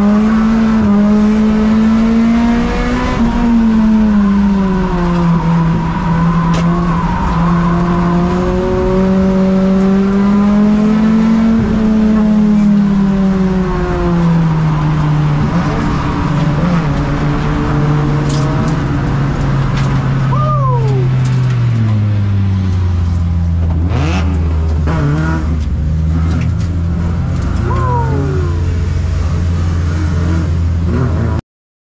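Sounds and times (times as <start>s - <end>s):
race car engine: 0.0s - 31.4s
short falling whines: 27.6s - 29.4s.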